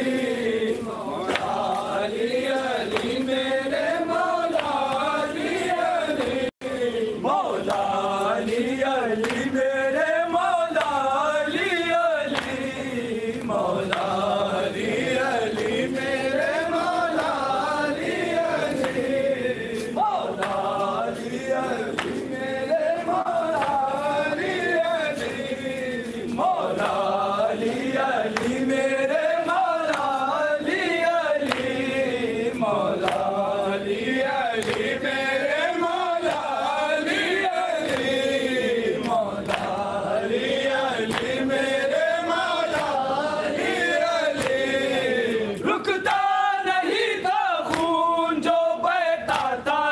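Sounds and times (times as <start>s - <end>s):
men chanting a lament: 0.0s - 49.9s.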